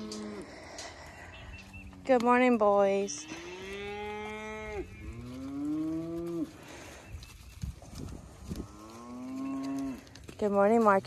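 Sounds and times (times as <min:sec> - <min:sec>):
cattle mooing: 0:00.0 - 0:01.3, 0:03.0 - 0:06.7, 0:08.6 - 0:10.1.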